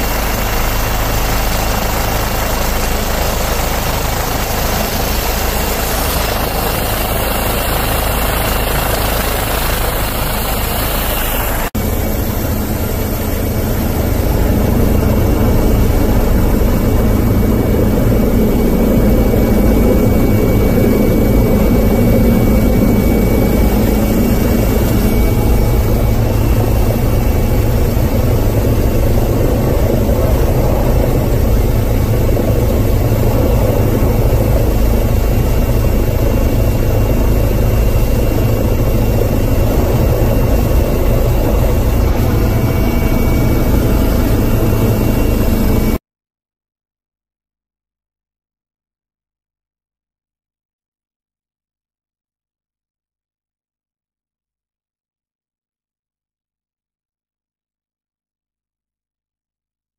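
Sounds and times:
helicopter engine and rotor: 0.0s - 46.0s.

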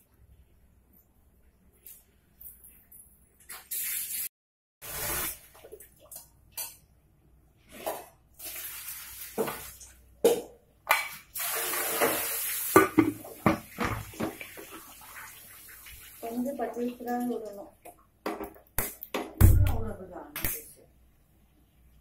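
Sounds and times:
water running: 3.4s - 6.9s, 7.6s - 20.1s.

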